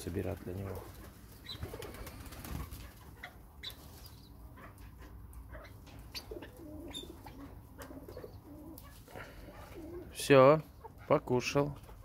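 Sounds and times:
partridges calling softly: 1.3s - 1.8s, 3.1s - 4.9s, 5.6s - 11.2s
low cooing clucks: 4.6s - 11.0s.

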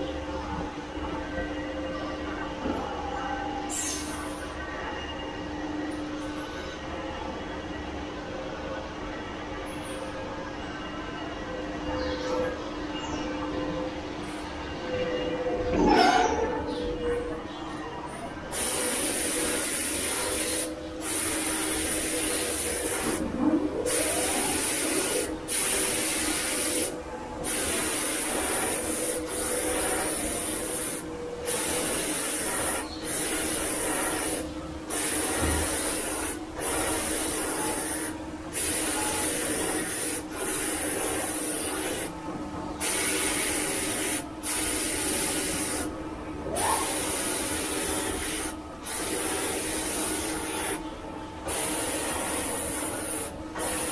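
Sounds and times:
machine hissing: 3.7s - 4.5s, 18.5s - 42.1s, 42.8s - 45.9s, 46.5s - 53.9s.

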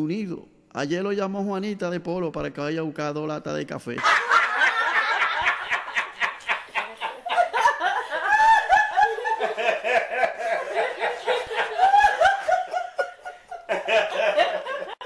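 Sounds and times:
high-pitched laugh: 4.0s - 15.0s
people laughing: 4.0s - 15.0s.

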